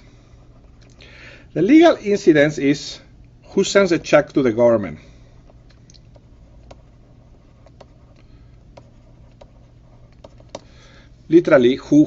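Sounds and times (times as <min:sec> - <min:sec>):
low steady hum: 0:00.0 - 0:12.0
stylus tapping on tablet screen: 0:08.7 - 0:10.7.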